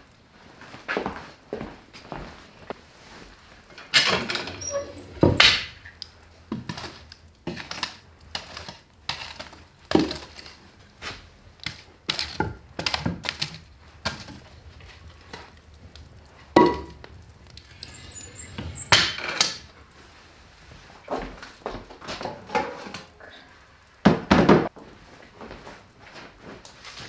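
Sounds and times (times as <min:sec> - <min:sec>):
dishware clinking: 0:17.6 - 0:19.7.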